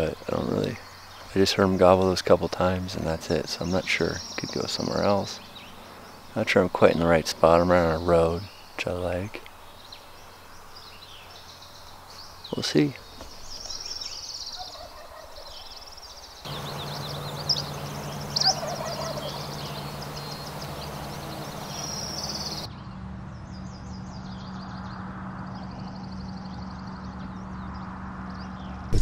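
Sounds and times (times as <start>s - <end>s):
songbird chatter: 0.0s - 22.7s
turkey gobbling: 16.5s - 22.7s.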